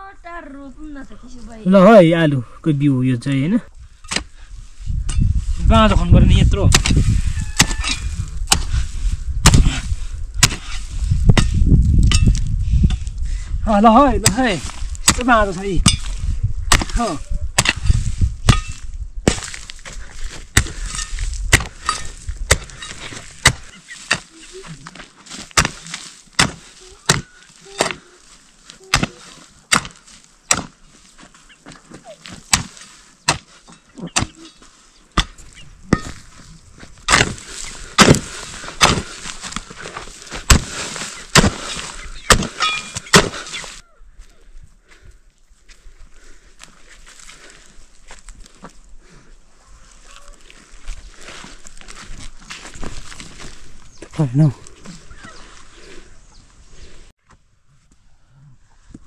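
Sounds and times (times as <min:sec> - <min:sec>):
hoe chopping into hard ground: 0:06.7 - 0:07.0, 0:07.6 - 0:08.8, 0:09.4 - 0:13.0, 0:14.2 - 0:19.7, 0:20.5 - 0:24.3, 0:25.2 - 0:28.1, 0:28.9 - 0:30.8, 0:32.2 - 0:34.4, 0:37.1 - 0:43.8.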